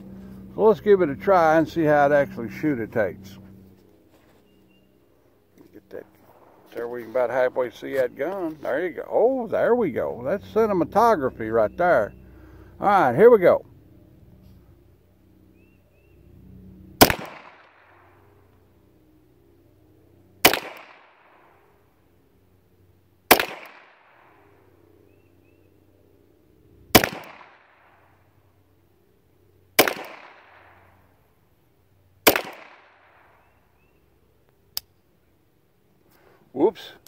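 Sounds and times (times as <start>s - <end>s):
pistol shots echoing: 17.0s - 18.1s, 20.4s - 21.5s, 23.3s - 24.5s, 26.9s - 28.0s, 29.8s - 30.8s, 32.2s - 33.5s
pistol misfire click: 23.3s - 24.2s, 27.0s - 27.8s, 29.8s - 30.6s, 32.2s - 33.0s, 34.7s - 35.0s.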